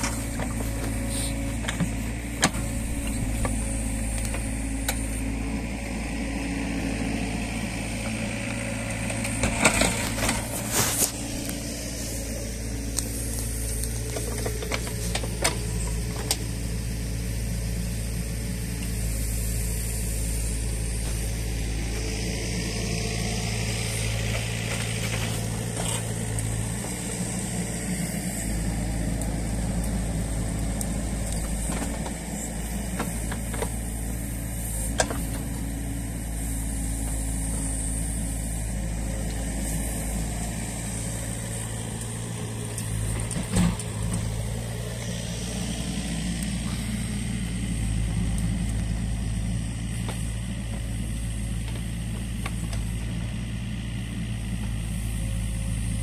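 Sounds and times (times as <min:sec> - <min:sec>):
excavator diesel engine running: 0:00.0 - 0:56.0.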